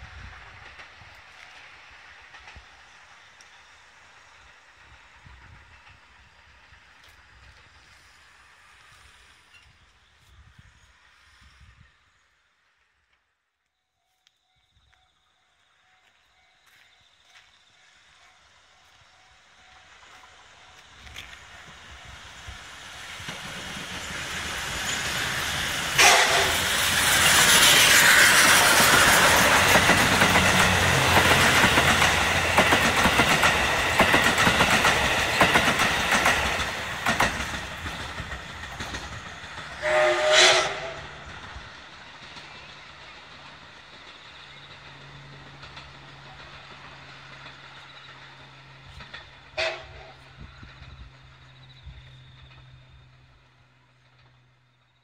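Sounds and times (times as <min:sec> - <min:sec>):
train rolling on rails: 0:00.0 - 0:55.0
steam whistle: 0:24.9 - 0:29.2, 0:39.8 - 0:41.2, 0:49.6 - 0:50.2.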